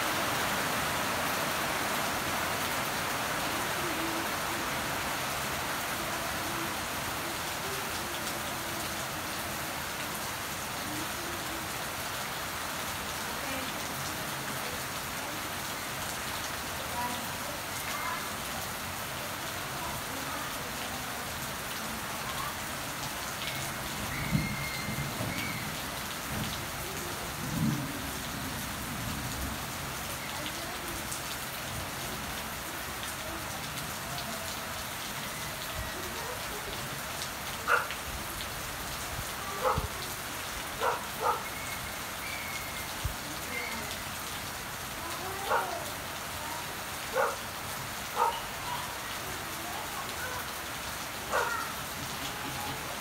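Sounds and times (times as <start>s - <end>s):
rain falling on plants: 0.0s - 53.0s
low rumbles of thunder: 27.4s - 28.6s.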